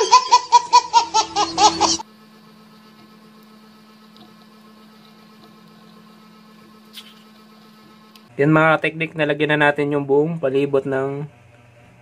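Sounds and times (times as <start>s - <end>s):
baby laughing: 0.0s - 2.0s.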